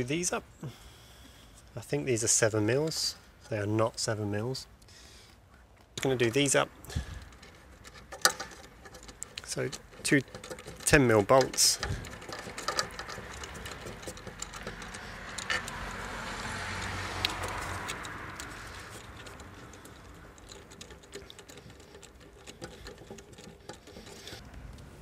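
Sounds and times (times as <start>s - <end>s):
background noise: 0.0s - 25.0s
ratchet clicking: 7.2s - 24.4s.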